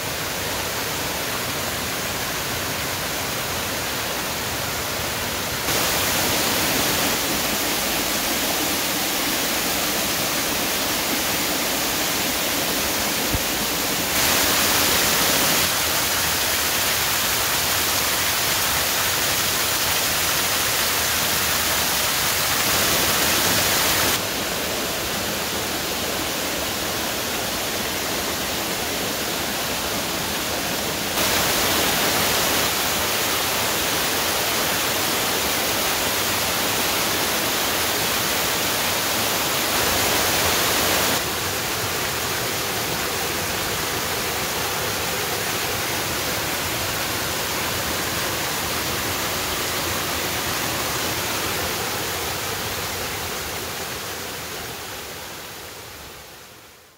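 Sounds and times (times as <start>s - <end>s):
waterfall rushing over rock: 0.0s - 56.6s.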